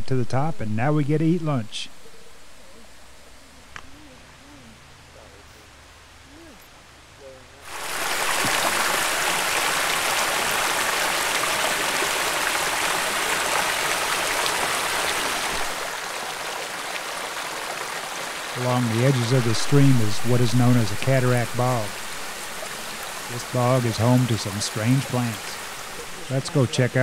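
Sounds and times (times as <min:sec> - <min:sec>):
stream rushing over rock: 0:07.6 - 0:27.0.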